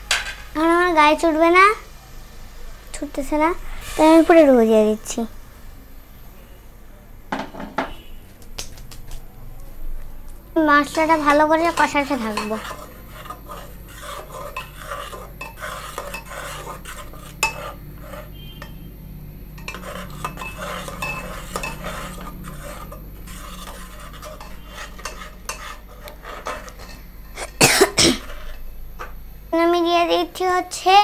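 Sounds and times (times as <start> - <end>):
spoon scraping paste in pot: 10.8 - 18.8, 19.6 - 27.6, 28.2 - 28.6.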